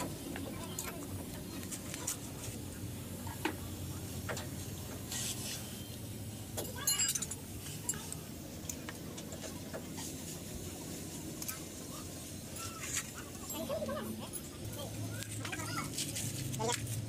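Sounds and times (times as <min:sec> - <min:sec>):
metal parts and tools clicking: 0:06.5 - 0:09.3.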